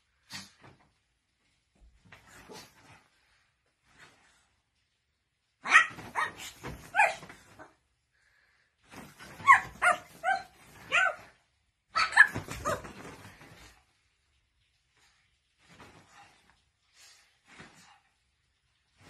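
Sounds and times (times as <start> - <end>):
dog barking: 5.6 - 7.7, 9.4 - 13.0.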